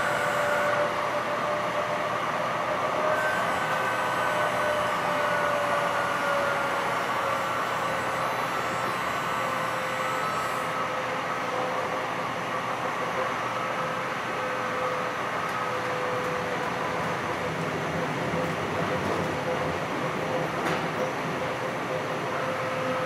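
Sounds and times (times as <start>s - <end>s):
thin steady whine: 3.2s - 18.0s
wheels rumbling on rail: 11.5s - 23.0s.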